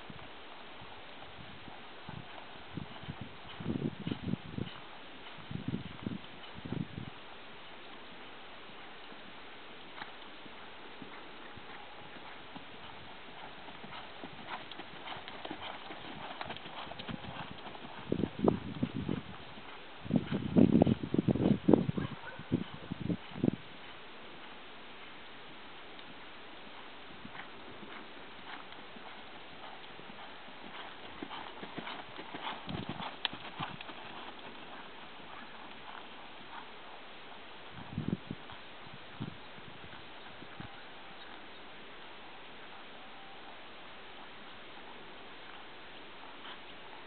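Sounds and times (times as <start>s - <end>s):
horse hoofbeats trotting on sand: 0.1s - 24.8s, 26.0s - 41.6s, 44.2s - 47.0s.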